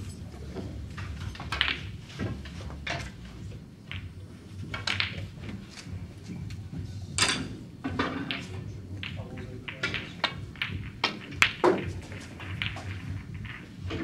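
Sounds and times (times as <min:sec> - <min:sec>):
steady low hum: 0:00.0 - 0:14.0
snooker ball knocks and clicks: 0:00.3 - 0:06.6, 0:07.2 - 0:14.0.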